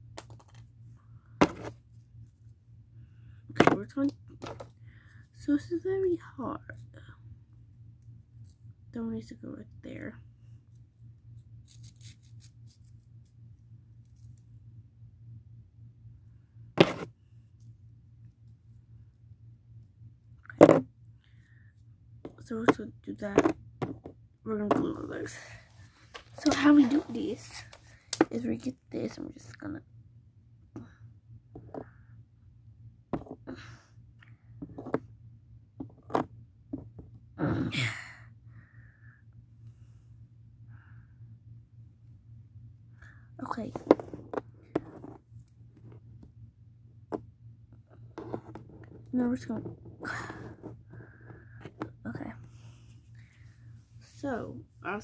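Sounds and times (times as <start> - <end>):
faint low hum: 0.0 - 55.0
cardboard pieces knocking and clicking: 1.4 - 1.7.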